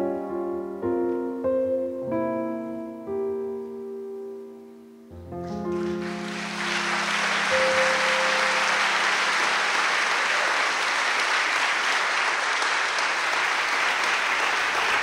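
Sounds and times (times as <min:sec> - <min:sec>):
held musical tone: 0:05.2 - 0:10.0
audience applauding: 0:05.5 - 0:15.0.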